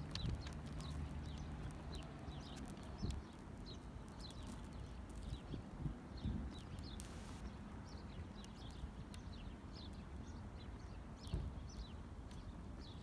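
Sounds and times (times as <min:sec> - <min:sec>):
small birds chirping: 0:00.0 - 0:13.0
burning matchsticks crackling: 0:06.8 - 0:07.5.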